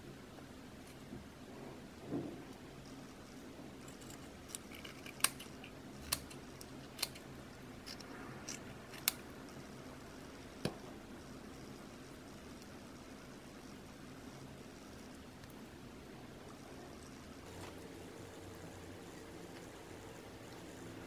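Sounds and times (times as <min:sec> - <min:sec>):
low background hum: 0:00.0 - 0:21.0.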